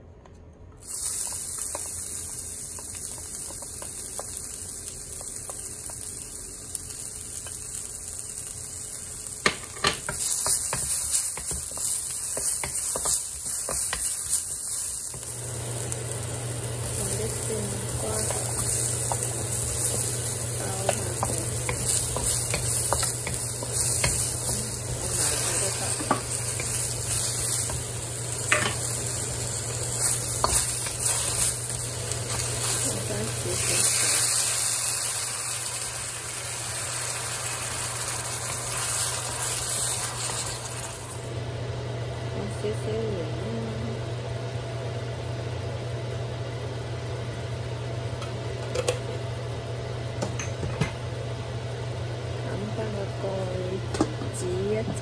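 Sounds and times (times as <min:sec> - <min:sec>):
low kitchen hum: 0:00.0 - 0:55.0
vegetables sizzling in a wok: 0:00.8 - 0:55.0
spatula stirring in a wok: 0:09.9 - 0:15.3, 0:17.0 - 0:35.6.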